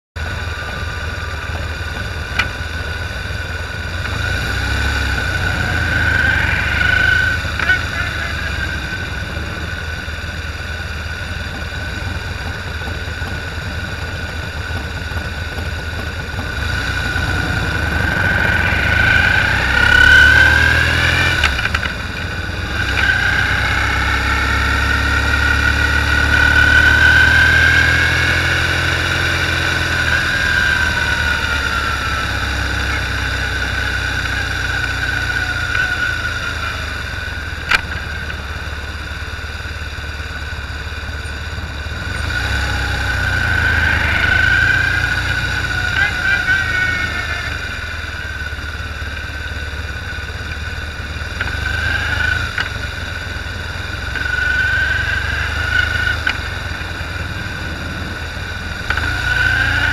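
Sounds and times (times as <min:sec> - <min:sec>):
motorcycle engines pulling away: 0:00.2 - 0:59.9.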